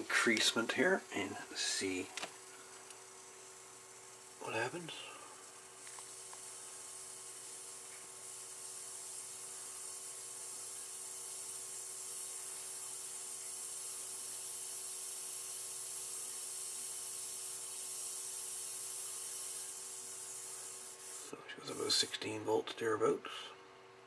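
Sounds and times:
faint hum: 0.0 - 14.1
power supply hiss and whine: 0.0 - 23.2.

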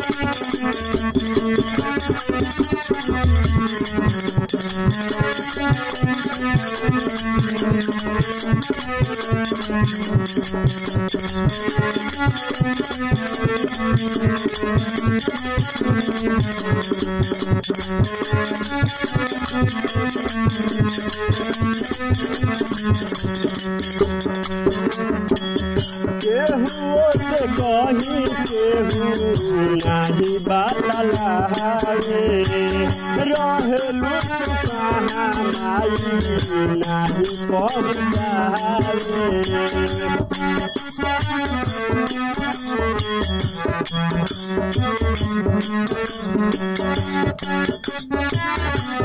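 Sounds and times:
fast percussion: 0.0 - 49.0
wavering melody line: 2.9 - 4.6, 22.4 - 34.0.

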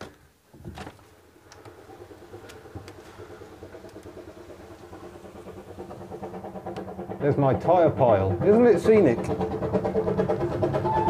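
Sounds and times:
steam locomotive working beat: 1.3 - 11.0.

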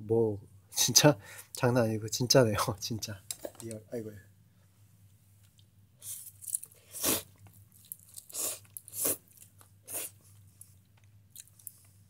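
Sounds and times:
person eating close up: 5.4 - 12.0.

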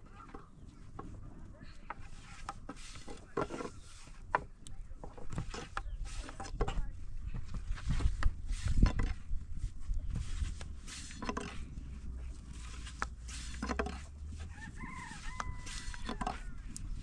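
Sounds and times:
pitched chicken call: 14.5 - 16.7.

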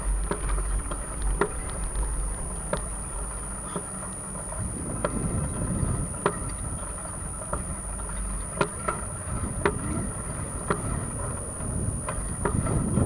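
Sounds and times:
wind and road rumble: 4.3 - 13.0.

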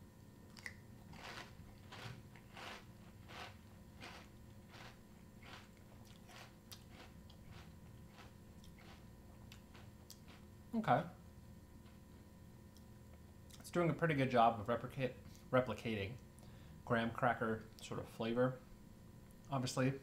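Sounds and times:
chewing crunchy cereal: 0.5 - 10.5.

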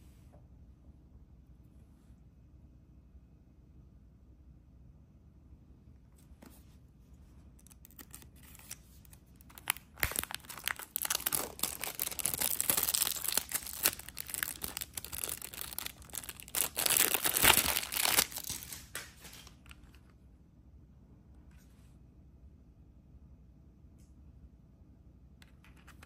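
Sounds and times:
plastic film crinkling: 7.5 - 20.0.

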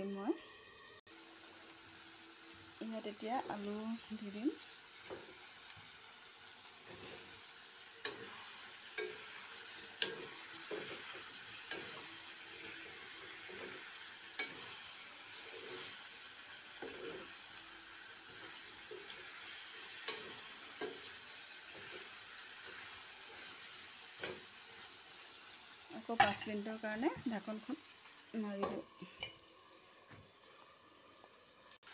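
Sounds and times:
curry sizzling in a metal pan: 0.0 - 31.9
spatula stirring: 6.8 - 17.6, 18.2 - 24.9
spatula clacking against pan: 8.0 - 12.1.

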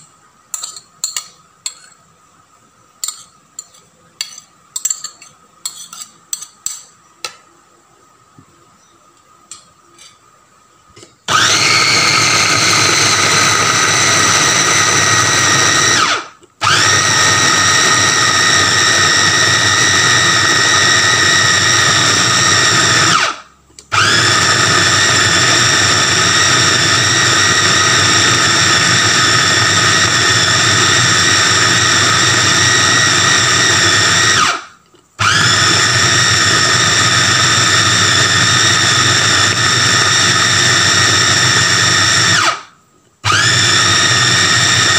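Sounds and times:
food chopper motor whining: 11.3 - 44.9.

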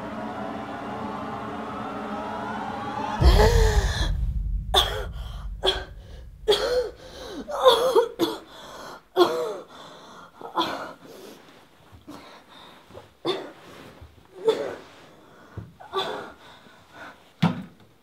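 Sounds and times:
woman coughing and gasping: 9.2 - 9.7.

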